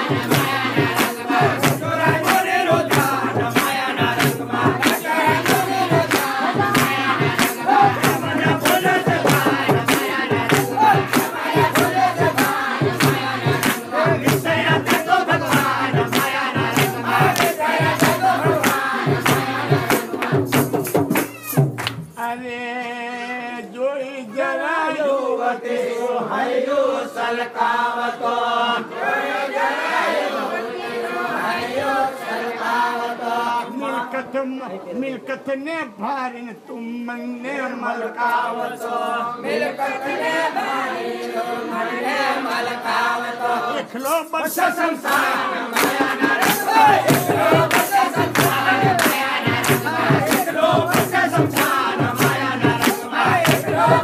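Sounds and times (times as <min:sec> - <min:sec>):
fast percussion beat: 0:00.0 - 0:22.2, 0:44.1 - 0:54.0
group singing devotional song: 0:00.0 - 0:35.2, 0:36.3 - 0:54.0.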